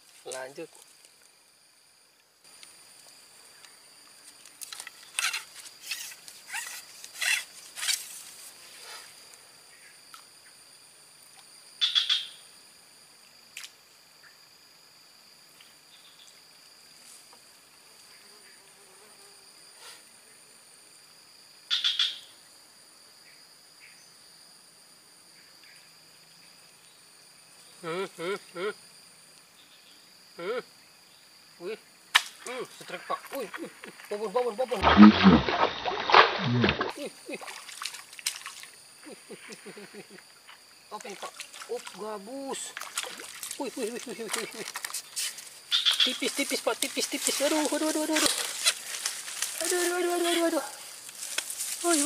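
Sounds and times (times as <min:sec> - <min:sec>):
insects droning: 0:00.0 - 0:52.0.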